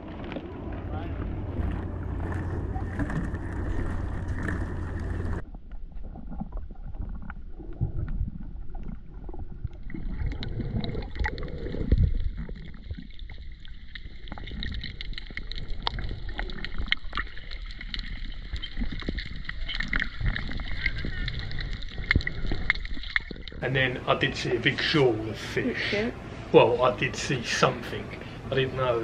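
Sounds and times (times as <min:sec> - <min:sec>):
wind buffeting microphone: 0:00.0 - 0:05.4
small clicks and crackles: 0:00.0 - 0:23.6
muffled underwater swishes: 0:00.0 - 0:29.0.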